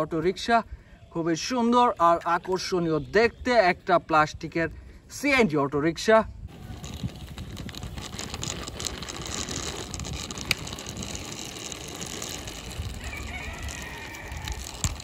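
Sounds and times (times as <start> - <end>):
toy wheels rolling on concrete: 6.5 - 15.0.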